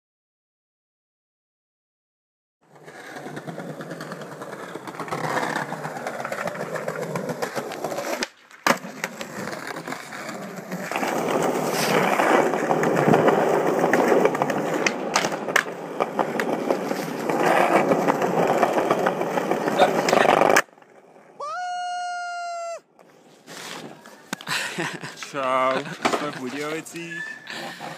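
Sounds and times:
skateboard wheels rolling on stone: 0:02.6 - 0:22.1, 0:22.9 - 0:27.9
skateboard clacks: 0:02.7 - 0:21.0, 0:24.3 - 0:26.7.

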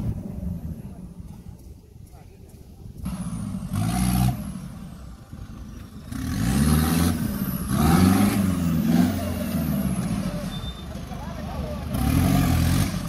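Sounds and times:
off-road engine revving: 0:02.8 - 0:13.0.

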